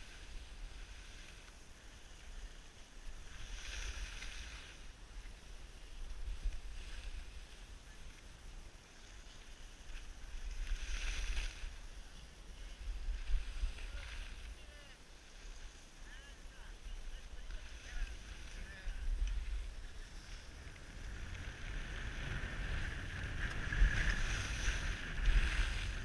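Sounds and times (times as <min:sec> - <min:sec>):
skis scraping over snow: 0:00.0 - 0:26.0
wind rumble on microphone: 0:00.0 - 0:26.0.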